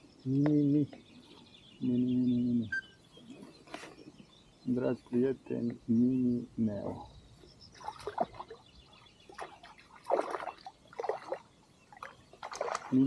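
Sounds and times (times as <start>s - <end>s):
water splashing: 7.7s - 8.6s, 9.3s - 13.0s.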